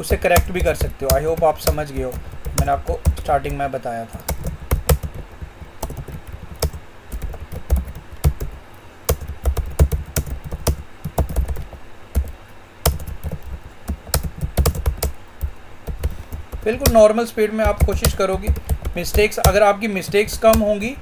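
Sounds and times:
typing on computer keyboard: 0.0 - 21.0.

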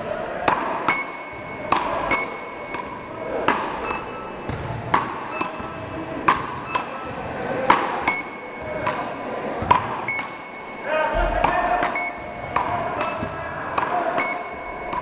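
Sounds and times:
short high beep: 8.1 - 8.6, 10.1 - 12.4, 14.2 - 15.0.

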